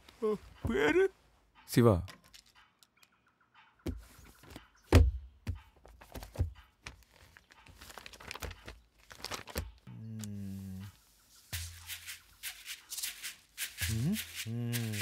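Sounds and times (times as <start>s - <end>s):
pages turning and writing: 5.8s - 15.0s
paper rustling: 6.0s - 10.3s.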